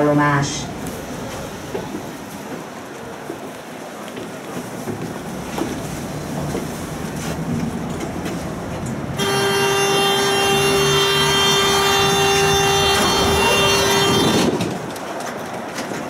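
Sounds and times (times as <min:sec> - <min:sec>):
low hum of stopped tram: 0:00.0 - 0:16.0
door warning buzzer: 0:09.2 - 0:14.5.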